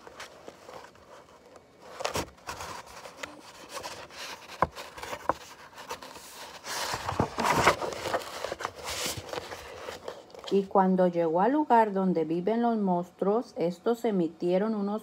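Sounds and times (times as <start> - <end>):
paper pages rubbing and sliding: 0.0 - 10.5
page turning rustle: 0.0 - 10.7.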